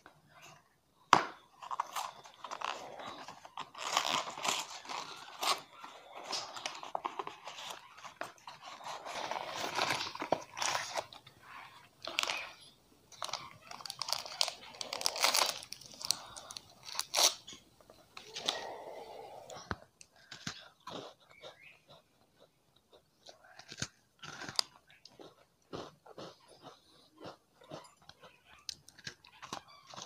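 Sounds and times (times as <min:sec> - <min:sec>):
packaging crinkling and tearing: 0:01.5 - 0:17.6.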